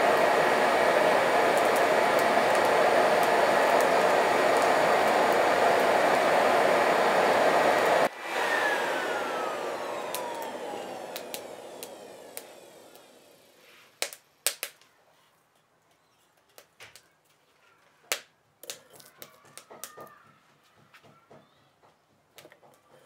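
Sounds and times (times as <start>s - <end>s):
electric air blower winding down: 0.0s - 13.8s.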